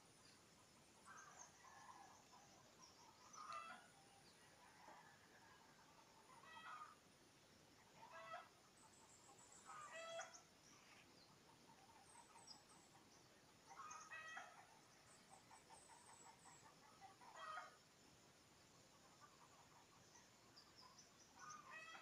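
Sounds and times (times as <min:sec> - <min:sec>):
faint chicken calls: 0:00.9 - 0:07.1, 0:07.8 - 0:17.8, 0:18.8 - 0:22.0.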